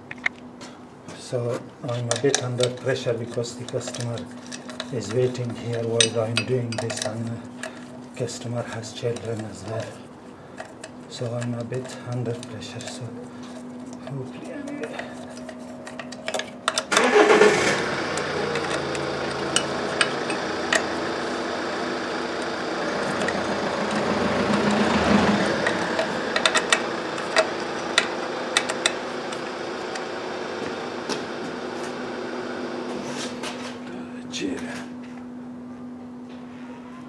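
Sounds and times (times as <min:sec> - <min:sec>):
machine running with low hum: 0:00.0 - 0:37.0
clicks of parts being handled: 0:01.5 - 0:07.9, 0:08.6 - 0:17.0, 0:18.1 - 0:21.0.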